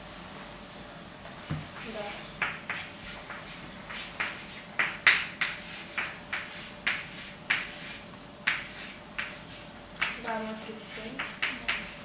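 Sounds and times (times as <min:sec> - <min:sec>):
scratchy writing strokes: 0:01.8 - 0:12.0.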